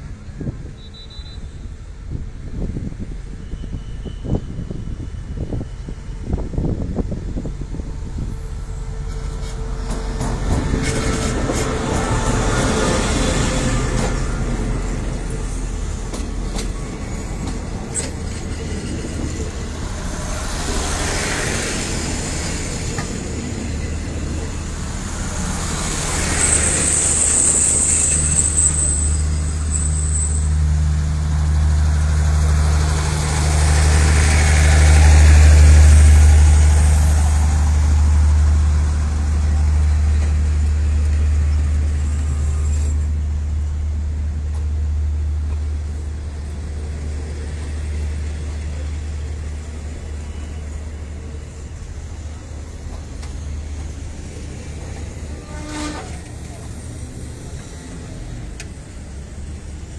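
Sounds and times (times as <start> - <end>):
train wheels rumbling on rail: 0.0 - 59.9
high-pitched squeal: 16.8 - 40.6.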